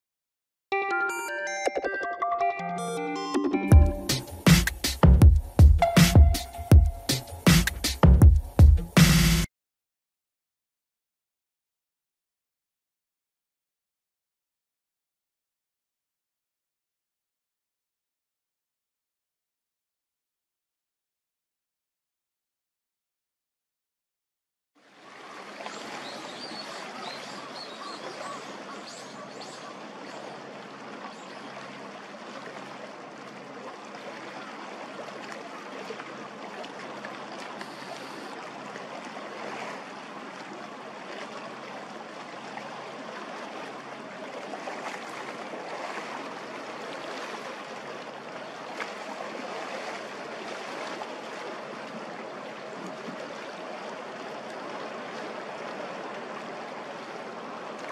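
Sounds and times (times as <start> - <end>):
water rushing at the shore: 24.8 - 57.9.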